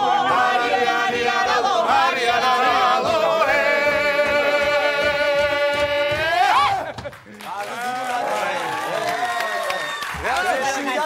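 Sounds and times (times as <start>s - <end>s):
voices singing together: 0.0s - 7.1s.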